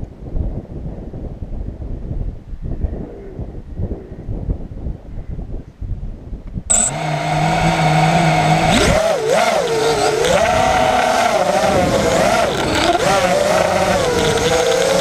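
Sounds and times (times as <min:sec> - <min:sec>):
wind buffeting microphone: 0:00.0 - 0:15.0
quadcopter motors whining: 0:06.7 - 0:15.0.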